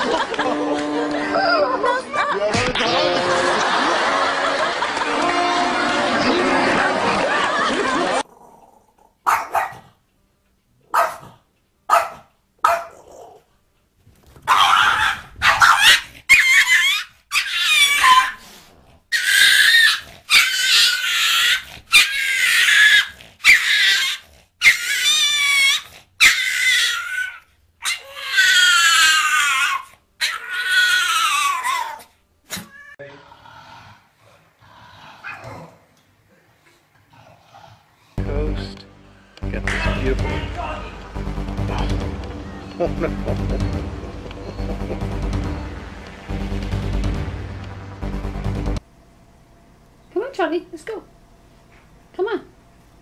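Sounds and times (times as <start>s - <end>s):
dog barking: 9.2s - 9.9s, 10.9s - 13.2s, 14.5s - 18.4s, 35.2s - 35.6s
dog yelping and whining: 14.4s - 33.0s.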